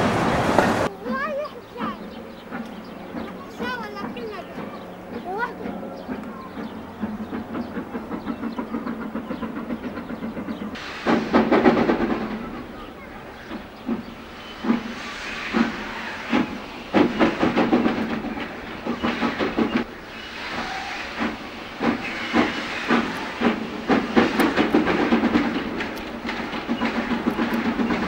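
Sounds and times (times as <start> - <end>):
steam locomotive chuffing: 0.0 - 28.0
steam hissing: 6.5 - 28.0.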